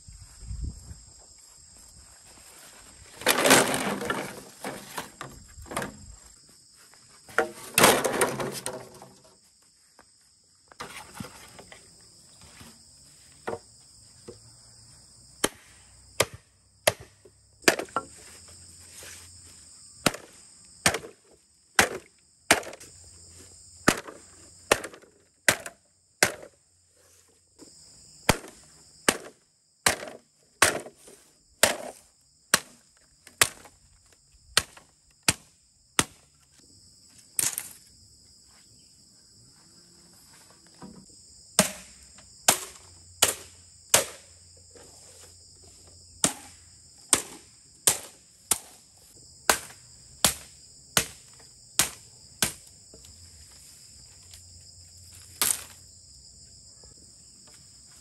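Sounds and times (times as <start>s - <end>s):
insects trilling: 0.0s - 58.0s
tool striking bamboo: 15.4s - 18.2s, 20.0s - 21.2s, 21.8s - 22.8s, 23.8s - 26.6s, 28.2s - 31.0s, 31.6s - 33.7s, 34.6s - 36.2s, 41.6s - 44.3s, 46.2s - 48.8s, 49.5s - 52.7s, 55.4s - 55.7s.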